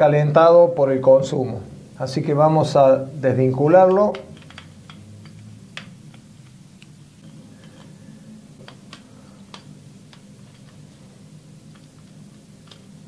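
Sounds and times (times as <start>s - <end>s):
small clicks and taps: 3.9s - 7.9s, 8.6s - 10.8s.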